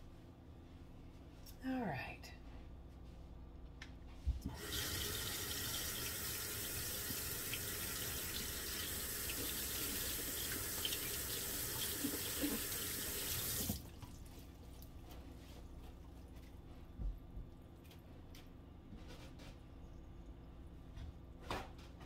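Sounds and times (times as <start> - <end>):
faucet water splashing: 4.6 - 14.3.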